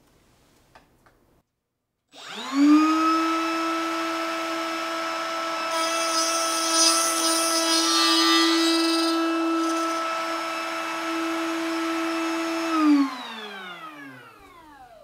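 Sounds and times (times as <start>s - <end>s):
router bit cutting wood: 2.1s - 15.0s
router motor whining: 2.1s - 15.0s.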